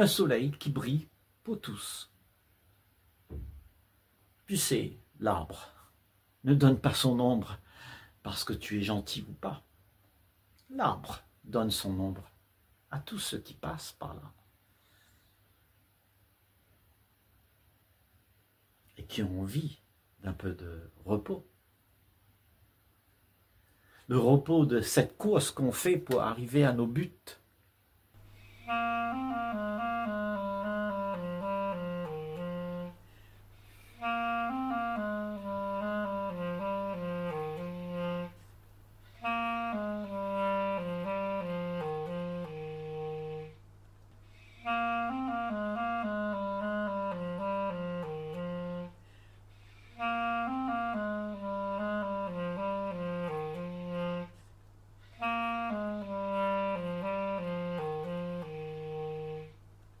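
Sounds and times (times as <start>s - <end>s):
solo woodwind melody: 28.2s - 59.6s.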